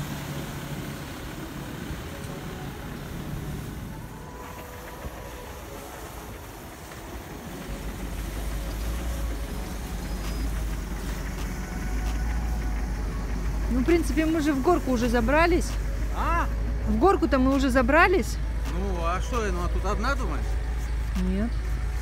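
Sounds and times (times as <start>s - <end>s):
off-road vehicle engine running: 0.0s - 22.0s.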